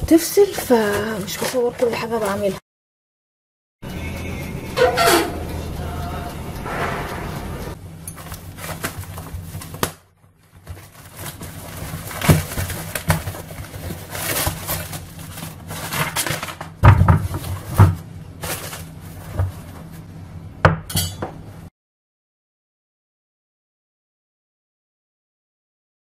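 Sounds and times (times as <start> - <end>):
plastic wrapping rustling: 0.1 - 2.6, 7.2 - 20.1.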